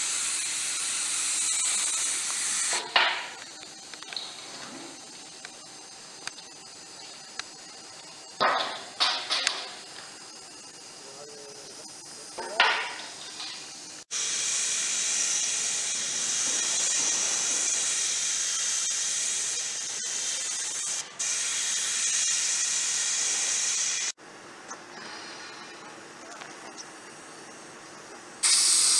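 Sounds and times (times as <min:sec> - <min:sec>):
compressed air hiss: 0:14.0 - 0:24.2, 0:28.4 - 0:28.9.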